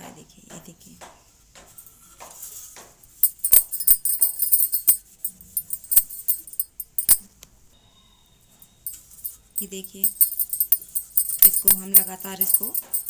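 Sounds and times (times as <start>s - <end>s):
metallic jingling and clicks: 3.2s - 7.3s, 8.9s - 13.0s.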